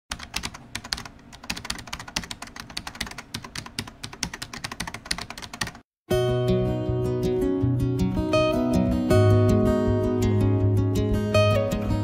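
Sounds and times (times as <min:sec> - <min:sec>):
rapid keyboard typing: 0:00.1 - 0:05.8.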